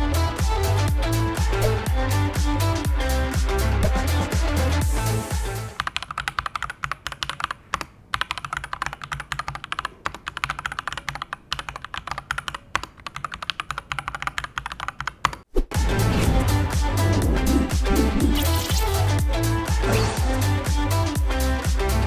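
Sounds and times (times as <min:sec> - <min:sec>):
music: 0:00.0 - 0:05.8, 0:15.7 - 0:22.0
mechanical keyboard typing: 0:05.8 - 0:15.5.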